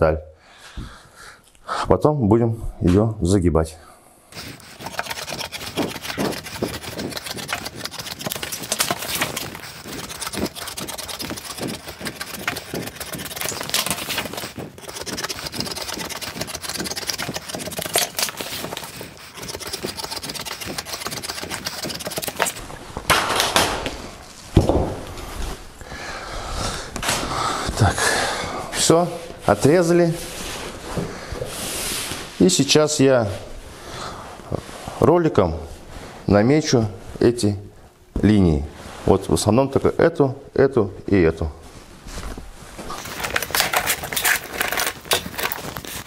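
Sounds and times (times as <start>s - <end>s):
tin snips cutting sheet metal: 4.4s - 22.6s.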